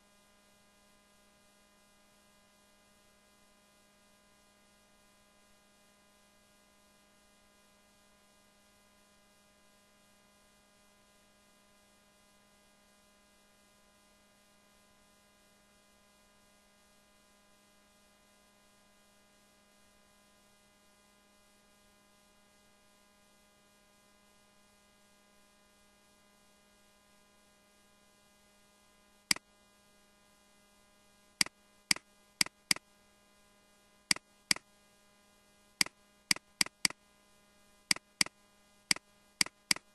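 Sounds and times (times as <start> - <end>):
faint electrical mains hum: 0.0 - 39.9
sharp clicks: 31.9 - 32.8, 36.3 - 37.0, 37.9 - 38.3, 39.4 - 39.9.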